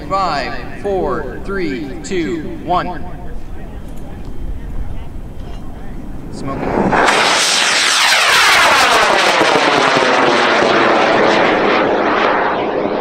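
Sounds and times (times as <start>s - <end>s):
rocket motor roaring: 6.0s - 13.0s.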